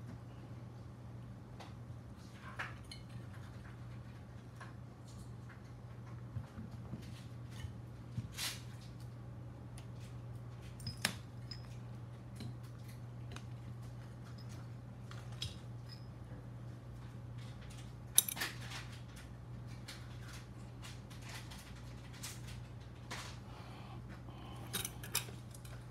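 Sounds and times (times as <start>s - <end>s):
steady low hum: 0.0s - 25.9s
small parts clicking and knocking: 17.6s - 19.2s, 24.5s - 25.9s.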